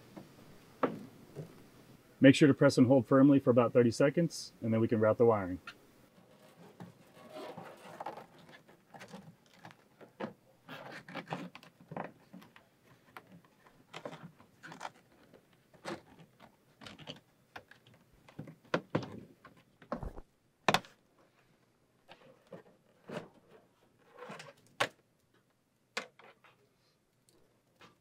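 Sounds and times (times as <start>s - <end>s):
cable rustling against plastic trim: 6.2s - 10.3s, 10.9s - 20.2s.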